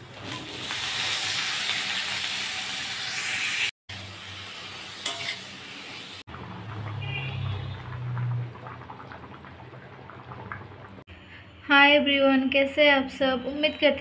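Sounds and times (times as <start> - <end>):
vegetables sizzling in oil: 0.0 - 8.4
curry bubbling: 6.2 - 11.1.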